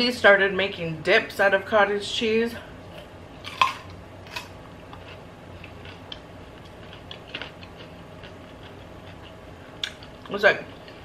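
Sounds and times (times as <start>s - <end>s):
carrot crunching while chewed: 3.0s - 10.4s.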